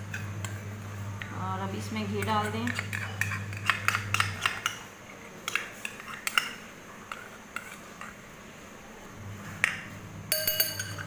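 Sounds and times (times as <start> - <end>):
metal spoon clinking on bowl: 10.3 - 11.0.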